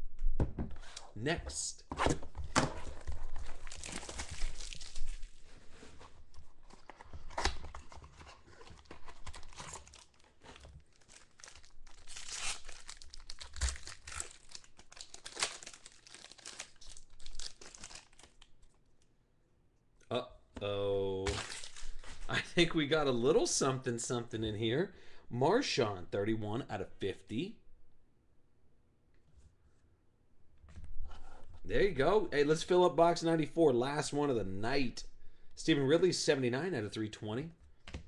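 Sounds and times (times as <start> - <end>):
foil wrapper crinkling and tearing: 3.0 - 5.5, 6.7 - 18.8, 21.3 - 22.2.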